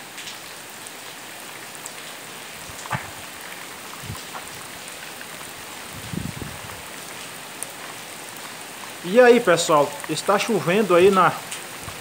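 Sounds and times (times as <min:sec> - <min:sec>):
heavy rain falling: 0:00.0 - 0:12.0
low thumps: 0:02.8 - 0:03.3.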